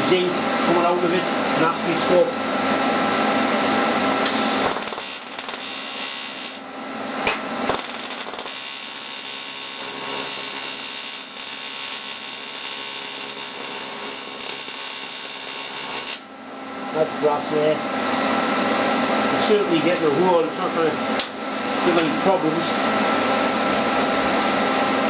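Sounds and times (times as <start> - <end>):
welding arc buzzing and hissing: 4.2 - 16.3.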